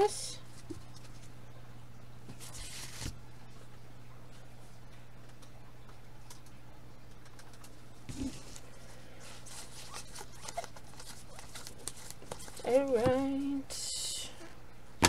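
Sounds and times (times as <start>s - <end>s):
faint steady hum: 0.0s - 15.0s
cards rustling and clicking: 2.3s - 3.2s, 7.2s - 13.3s.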